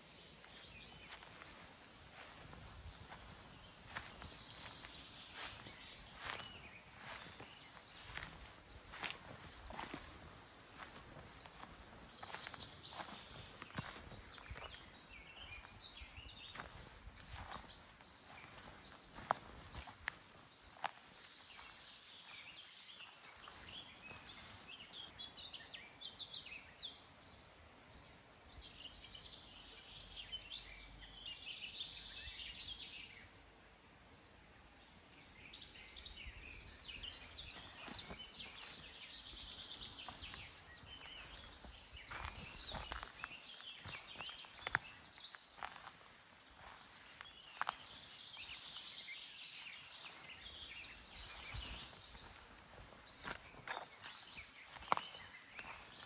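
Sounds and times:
faint birdsong: 0:00.0 - 0:56.0
footsteps on trail: 0:00.4 - 0:25.2, 0:36.8 - 0:56.0.

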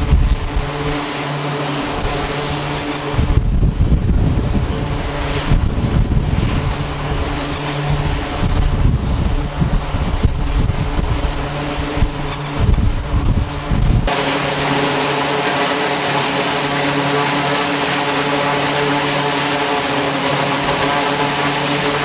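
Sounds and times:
wind rumble on microphone: 0:00.0 - 0:01.0, 0:01.8 - 0:14.1
aircraft engines humming: 0:00.0 - 0:22.0.

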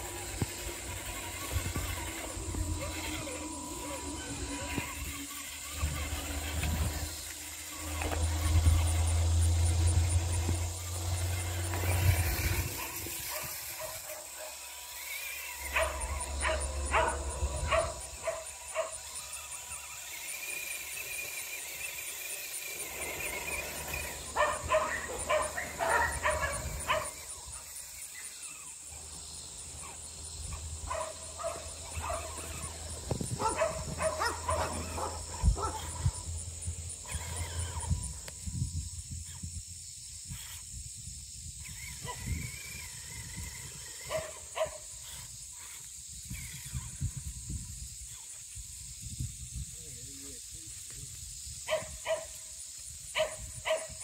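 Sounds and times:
dog barking: 0:15.7 - 0:19.0, 0:24.4 - 0:27.2, 0:30.9 - 0:32.4, 0:33.4 - 0:36.0, 0:51.7 - 0:52.3.

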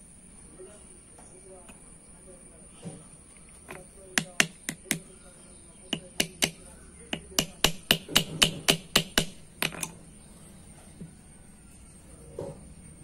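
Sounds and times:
hammer tapping metal rivets: 0:03.7 - 0:05.1, 0:05.9 - 0:10.0.

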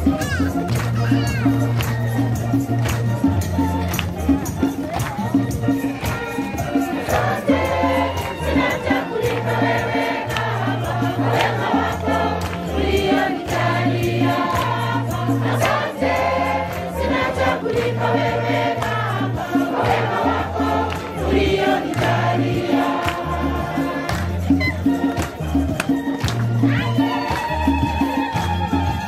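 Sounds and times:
percussion beat: 0:00.0 - 0:29.0
choir singing: 0:05.7 - 0:25.6.

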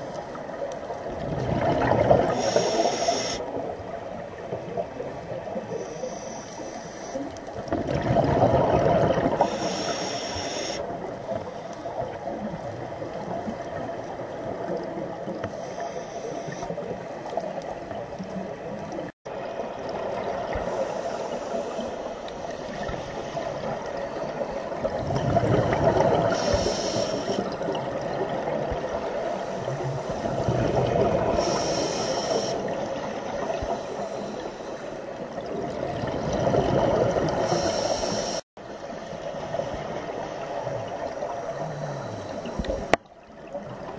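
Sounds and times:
underwater water noise: 0:00.0 - 0:43.9
gurgling exhaled bubbles: 0:01.0 - 0:05.7, 0:07.6 - 0:09.9, 0:22.4 - 0:31.8, 0:35.3 - 0:37.9
scuba regulator inhale hiss: 0:02.3 - 0:03.6, 0:05.7 - 0:07.4, 0:09.4 - 0:10.8, 0:15.4 - 0:16.9, 0:20.6 - 0:23.7, 0:26.3 - 0:27.6, 0:31.2 - 0:35.1, 0:37.4 - 0:38.4.

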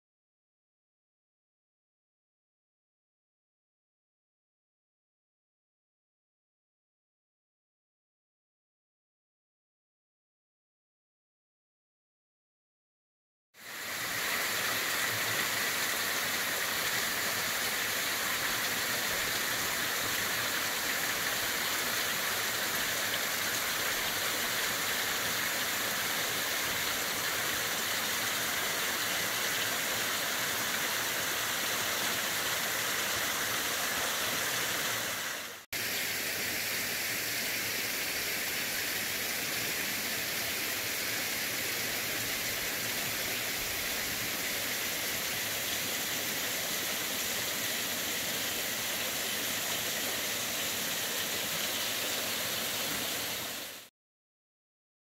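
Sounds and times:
water rushing: 0:13.6 - 0:53.9.

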